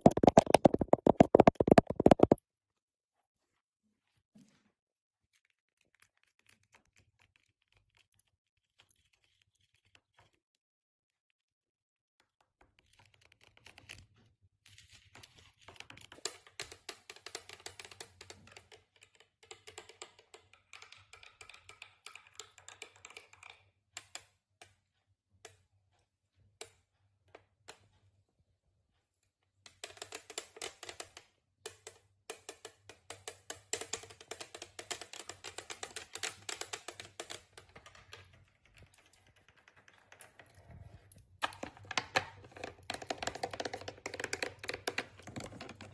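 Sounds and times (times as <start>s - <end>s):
nails tapping on plastic: 0.0s - 2.4s, 29.7s - 40.4s, 41.4s - 45.9s.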